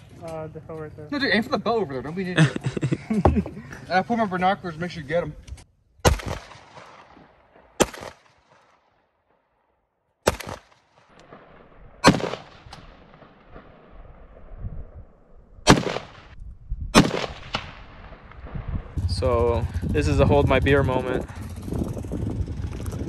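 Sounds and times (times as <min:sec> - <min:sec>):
rifle shots with echo: 0:06.0 - 0:09.1, 0:10.2 - 0:14.5, 0:15.6 - 0:18.8.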